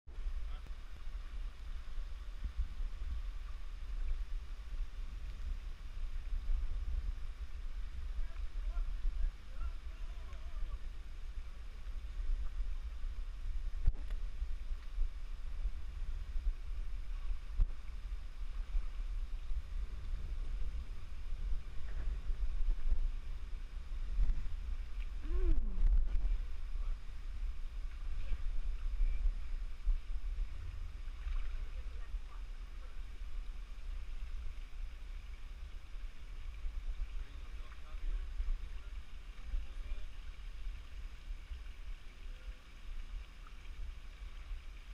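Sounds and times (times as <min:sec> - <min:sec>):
low microphone rumble: 0:00.1 - 0:44.9
water splashing from wading: 0:23.6 - 0:44.9.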